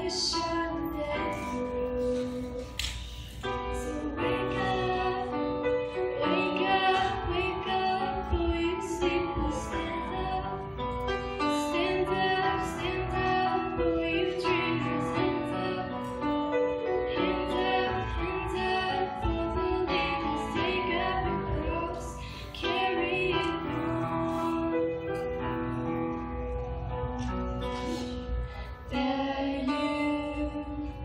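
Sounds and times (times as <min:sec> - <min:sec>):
girl singing: 0:00.0 - 0:03.0, 0:03.6 - 0:10.7, 0:28.5 - 0:31.0
piano chords: 0:00.0 - 0:31.0.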